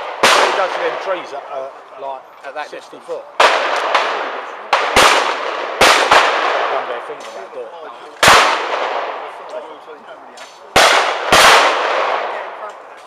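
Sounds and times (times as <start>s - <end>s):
shotgun shots echoing: 0.0s - 1.4s, 3.4s - 7.5s, 8.2s - 9.4s, 10.5s - 12.7s.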